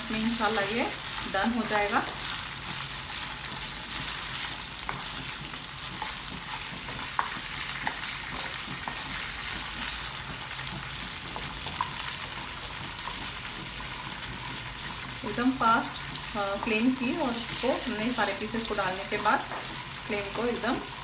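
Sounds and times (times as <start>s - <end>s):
chicken sizzling in hot oil: 0.0s - 21.0s
wooden spatula tapping a pan: 19.1s - 19.8s.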